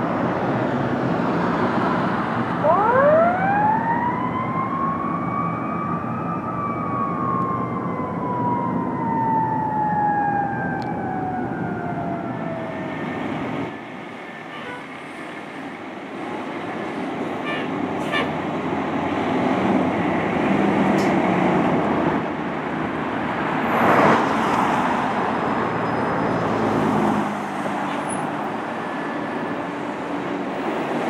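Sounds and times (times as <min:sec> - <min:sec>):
street traffic: 0:00.0 - 0:31.0
siren wailing: 0:02.6 - 0:13.8.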